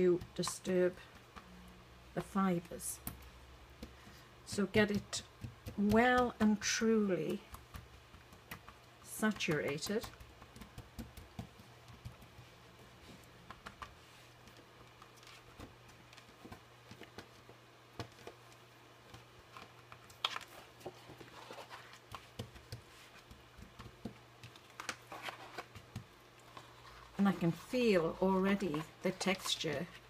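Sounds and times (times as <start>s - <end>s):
fingertips patting wet card: 0.0s - 30.0s.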